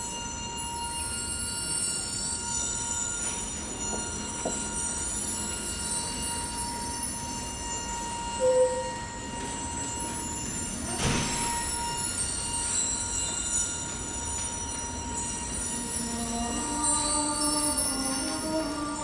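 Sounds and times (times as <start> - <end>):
chamber ensemble high ringing tones: 0.0 - 19.0.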